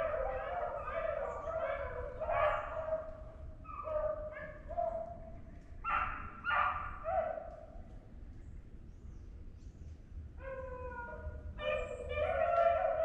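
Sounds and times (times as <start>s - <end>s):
hounds baying: 0.0s - 5.1s, 10.4s - 13.0s.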